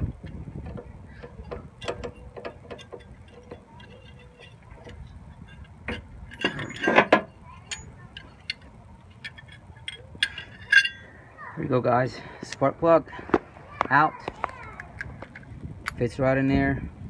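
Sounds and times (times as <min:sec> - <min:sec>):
ratchet clicking: 0:00.2 - 0:07.0.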